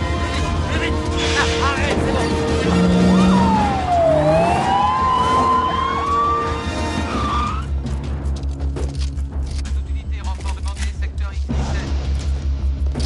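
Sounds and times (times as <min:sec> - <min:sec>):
police siren wailing: 0:02.3 - 0:07.7.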